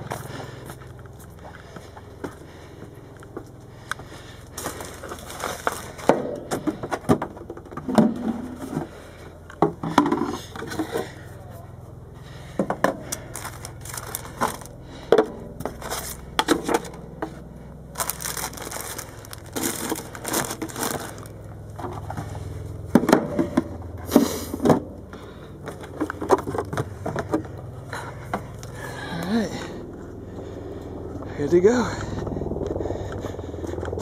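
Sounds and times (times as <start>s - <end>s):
plastic bags crinkling: 4.6s - 6.1s, 13.2s - 14.8s, 17.9s - 21.5s.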